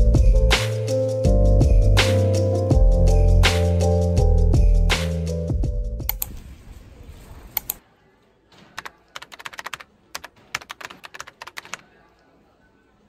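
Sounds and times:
background music: 0.0 - 6.3.

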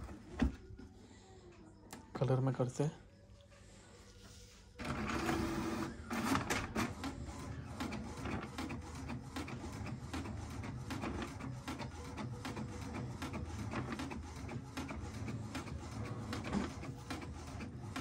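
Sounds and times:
printer motor whirring: 4.8 - 18.0.

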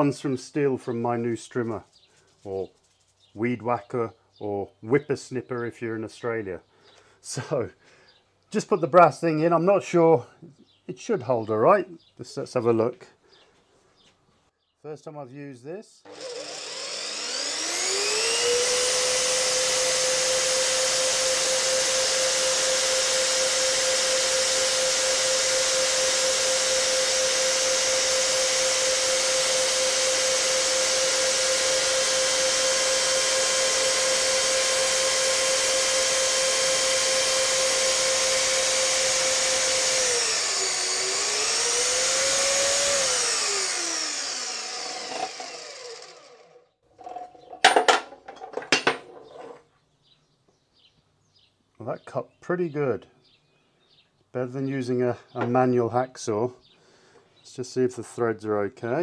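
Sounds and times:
saw blade cutting metal tube: 16.1 - 46.5
bandsaw motor whine: 16.1 - 46.7.

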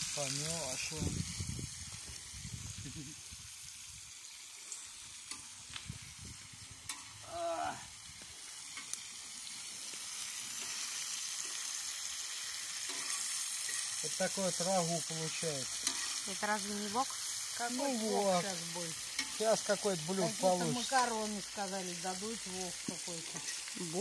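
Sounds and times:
food sizzling in a pan: 0.0 - 24.0
utensil scraping a pan: 12.8 - 14.0, 15.3 - 16.3, 23.3 - 23.7.

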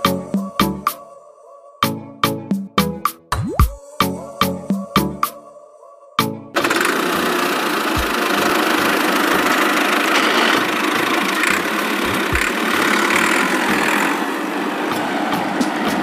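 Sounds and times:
motor droning: 6.6 - 15.5.

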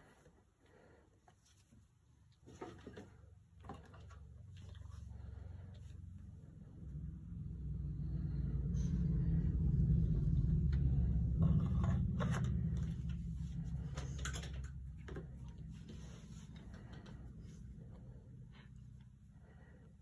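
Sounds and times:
low rumble: 4.4 - 20.0.

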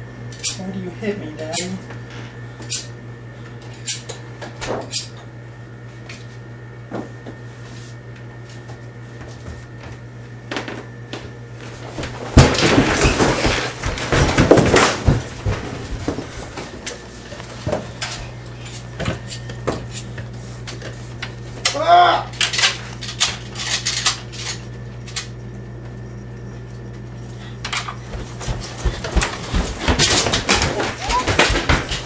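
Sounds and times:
steady low hum: 0.0 - 32.0
loud clattering and bumping: 12.2 - 16.7.

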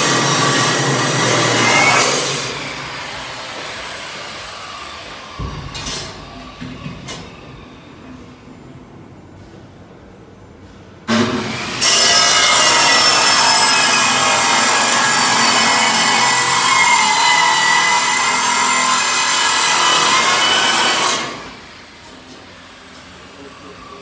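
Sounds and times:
band saw cutting metal: 0.0 - 6.2, 11.1 - 24.0.

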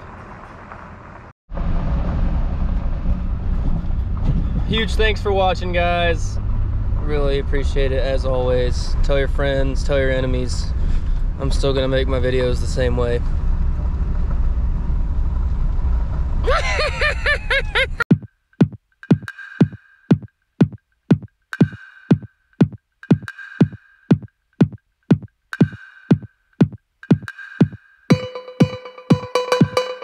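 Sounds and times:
electronic music with kick drum: 18.1 - 30.0.

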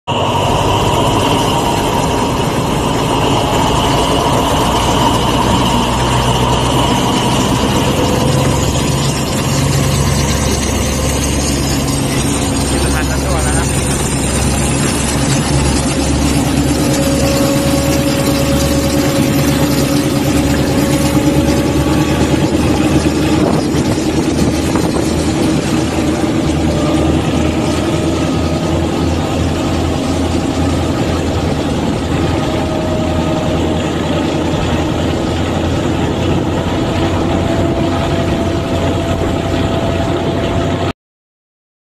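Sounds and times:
diesel locomotive engine droning: 0.0 - 41.0.

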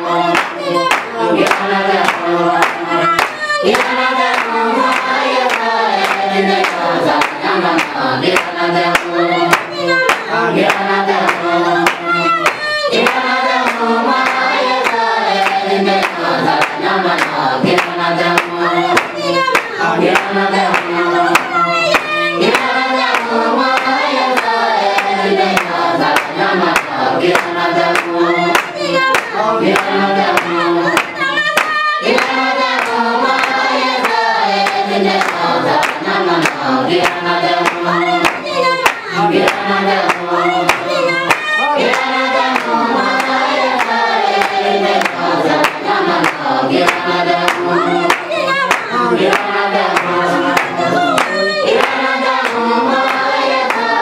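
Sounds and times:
group singing: 0.0 - 54.0
hand claps: 0.0 - 54.0.

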